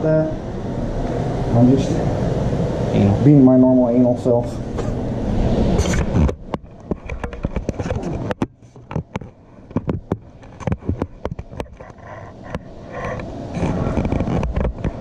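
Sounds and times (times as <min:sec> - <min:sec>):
rough rubbing and rumbling: 0:03.8 - 0:15.0.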